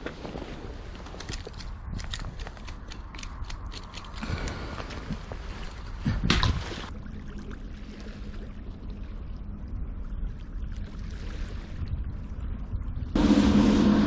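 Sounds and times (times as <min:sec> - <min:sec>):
water lapping along shore: 0:00.0 - 0:12.4
faint steady hum: 0:06.9 - 0:14.0.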